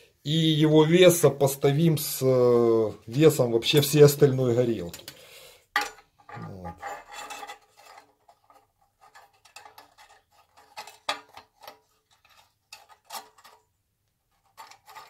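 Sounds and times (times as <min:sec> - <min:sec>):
metal ruler scraping on stove: 0:06.7 - 0:13.7, 0:14.3 - 0:15.0.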